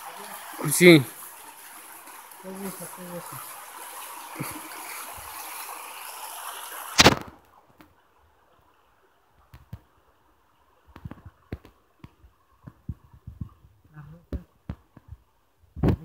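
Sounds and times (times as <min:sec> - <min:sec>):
creek water over stones: 0:00.0 - 0:16.0
loud sharp knock: 0:07.0 - 0:07.3.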